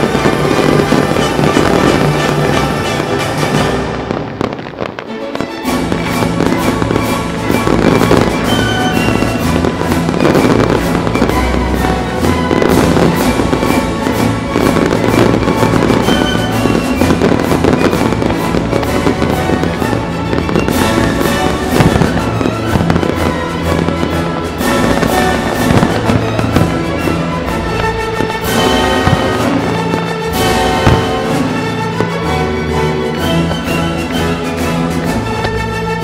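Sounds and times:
fireworks banging: 0:00.0 - 0:36.0
loud music: 0:00.0 - 0:36.0.

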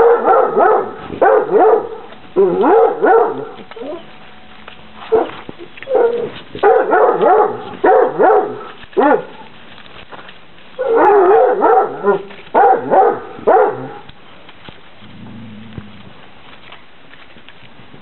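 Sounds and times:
puppies barking: 0:00.0 - 0:09.5, 0:10.7 - 0:14.1.

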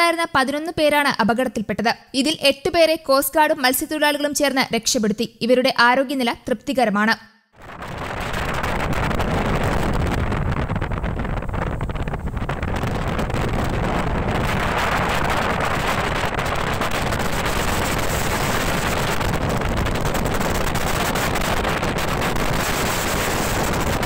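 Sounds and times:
water rushing against hull: 0:07.6 - 0:24.0
wind buffeting microphone: 0:07.6 - 0:24.0.

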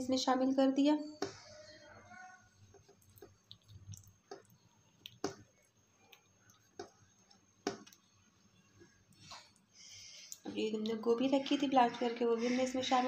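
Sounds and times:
sauce simmering with soft pops: 0:02.5 - 0:11.1.

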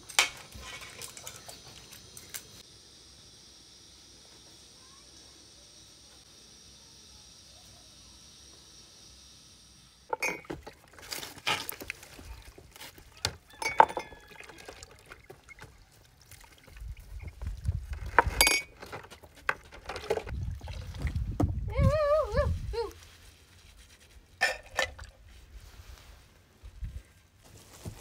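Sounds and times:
faint hiss: 0:02.0 - 0:10.1
dishes clinking: 0:10.1 - 0:10.7, 0:13.5 - 0:14.6, 0:24.4 - 0:25.0
water pouring into basin: 0:13.6 - 0:17.4, 0:20.1 - 0:21.3
wind rumble on microphone: 0:16.8 - 0:18.5, 0:20.3 - 0:23.0.

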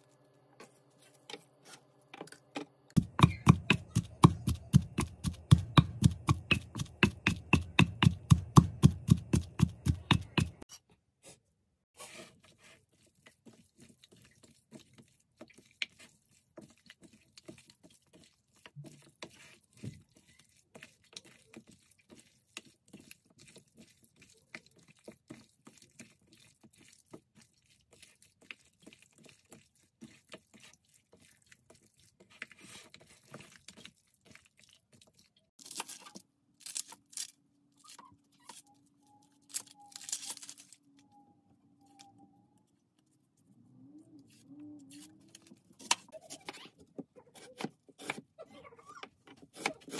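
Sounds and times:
pestle pounding in clay mortar: 0:03.0 - 0:10.6
hands mixing wet meat: 0:03.0 - 0:10.7, 0:12.0 - 0:35.6.

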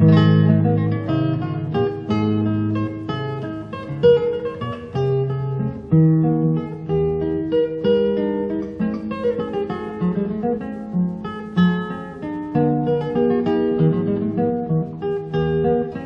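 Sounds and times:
acoustic guitar plucking: 0:00.0 - 0:16.0.

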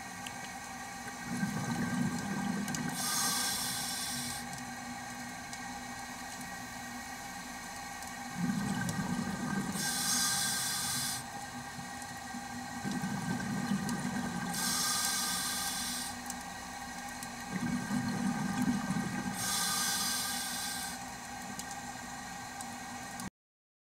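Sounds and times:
faint steady hum: 0:00.0 - 0:23.3
underwater bubbles rumbling: 0:01.1 - 0:03.0, 0:08.3 - 0:09.8, 0:11.4 - 0:14.6, 0:17.2 - 0:19.4
regulator hissing: 0:02.8 - 0:04.5, 0:08.5 - 0:11.4, 0:14.3 - 0:16.2, 0:19.2 - 0:21.0.

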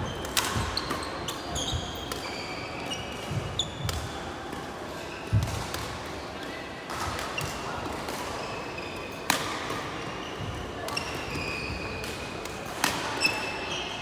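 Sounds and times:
rackets striking shuttlecock: 0:00.2 - 0:02.3.

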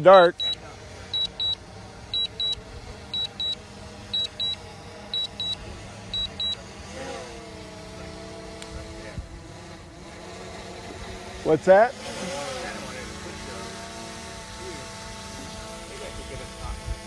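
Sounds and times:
steady humming tone: 0:00.0 - 0:17.0
remote controller short high beeps: 0:00.4 - 0:00.6, 0:01.2 - 0:01.6, 0:02.2 - 0:03.6, 0:04.2 - 0:06.6.

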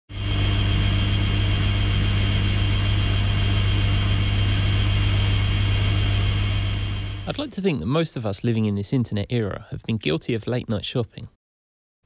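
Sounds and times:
toy washing machine motor hum: 0:00.1 - 0:07.4.

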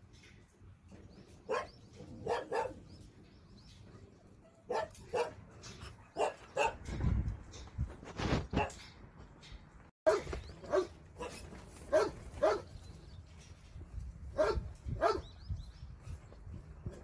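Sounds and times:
dog barking: 0:01.5 - 0:02.8, 0:04.4 - 0:05.4, 0:06.1 - 0:06.8, 0:10.1 - 0:12.7, 0:14.4 - 0:15.2.

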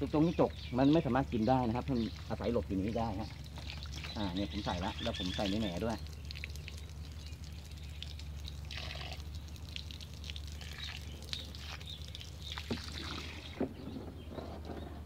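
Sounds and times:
hose water splashing: 0:00.0 - 0:15.0.

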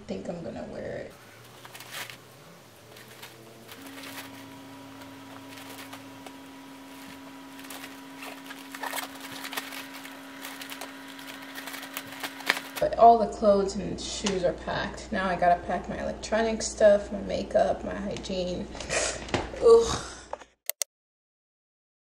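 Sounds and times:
steady low hum: 0:00.0 - 0:18.9
clothes and nylon fabric rustling: 0:01.1 - 0:12.8.

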